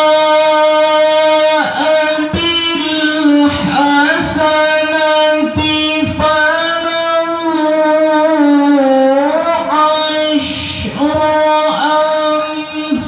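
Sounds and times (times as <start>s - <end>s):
man reciting melodically: 0.0s - 13.0s.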